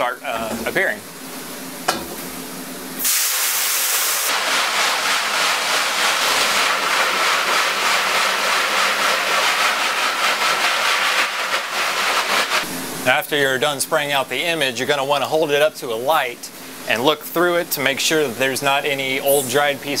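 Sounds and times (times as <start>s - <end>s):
hose spraying water on screen: 3.0s - 12.7s.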